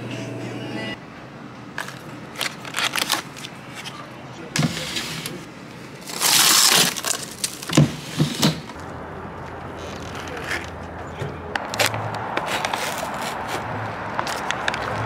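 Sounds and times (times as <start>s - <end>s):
plastic cups of ice rattling: 6.0s - 7.9s.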